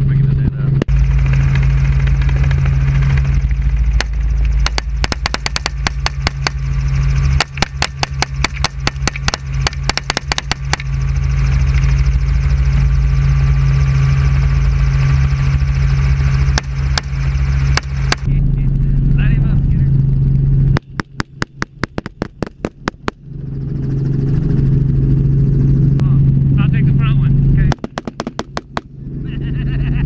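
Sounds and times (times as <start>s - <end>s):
helicopter engine and rotor drone: 0.0s - 30.0s
rapid rifle shots: 4.0s - 6.6s, 7.4s - 10.9s, 16.5s - 18.3s, 20.8s - 23.2s, 27.7s - 28.9s.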